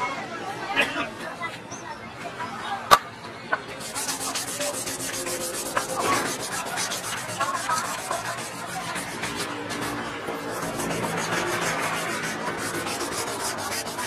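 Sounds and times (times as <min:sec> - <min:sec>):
sanding wood by hand: 0:03.8 - 0:14.0.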